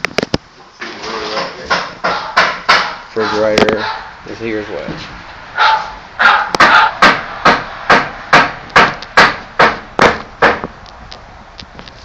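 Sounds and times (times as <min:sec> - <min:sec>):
hammer blows: 0:01.3 - 0:04.2, 0:04.9 - 0:10.8.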